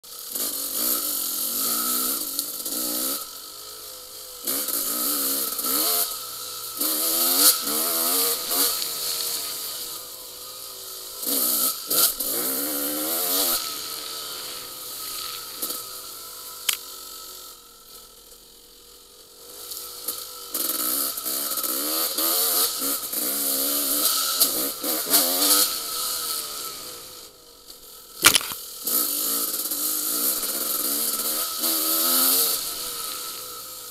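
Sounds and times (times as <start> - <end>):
dirt bike engine revving: 0.2 - 17.6, 19.4 - 27.4, 28.1 - 33.9
sharp knock: 28.2 - 28.6.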